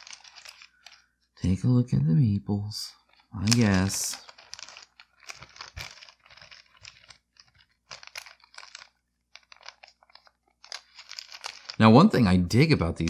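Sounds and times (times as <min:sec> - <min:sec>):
plastic bag crinkling: 0:00.0 - 0:01.1, 0:02.9 - 0:12.2.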